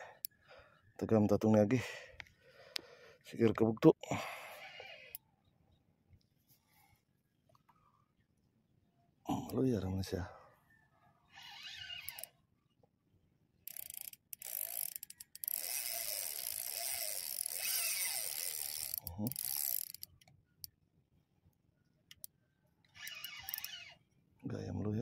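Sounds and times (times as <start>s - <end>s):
fishing reel whirring: 4.3s - 5.2s, 11.3s - 12.4s, 13.7s - 20.1s, 23.0s - 24.0s.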